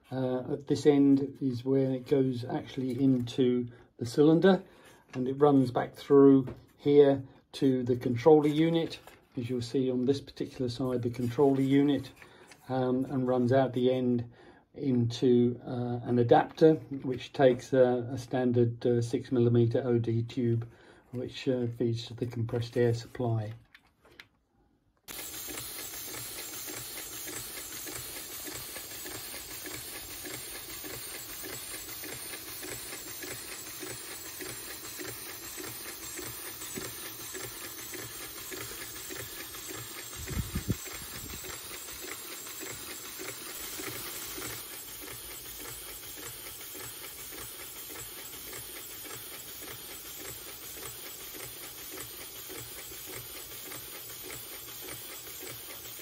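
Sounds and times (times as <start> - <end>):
light mechanical clatter: 25.1 - 56.0
steam engine chuffing on air: 25.1 - 56.0.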